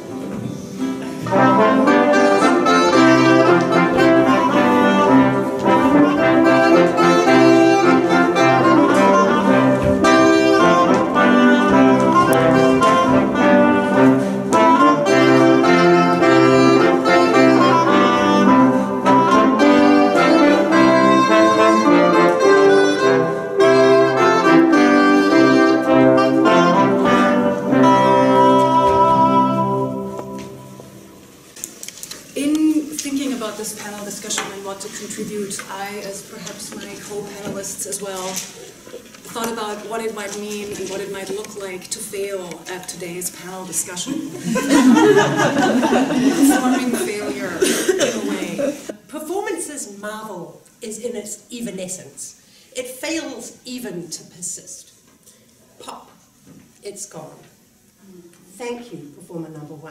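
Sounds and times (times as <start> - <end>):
early music ensemble playing: 0.0 - 49.0
trombones: 0.8 - 31.3.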